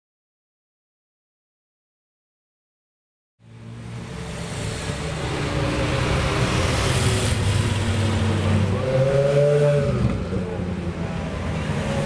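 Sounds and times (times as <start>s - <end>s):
car engines humming in traffic: 3.4s - 12.0s
engine revving: 4.0s - 10.6s.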